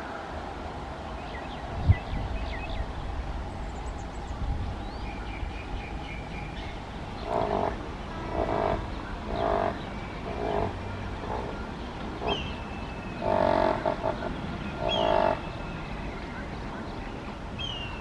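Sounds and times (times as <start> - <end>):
croaking animal calls: 13.2 - 15.4.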